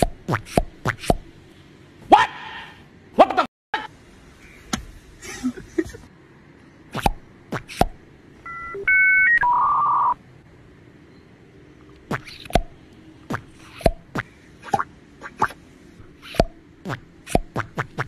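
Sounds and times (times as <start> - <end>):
electronic keypad beeps: 8.4 - 10.2.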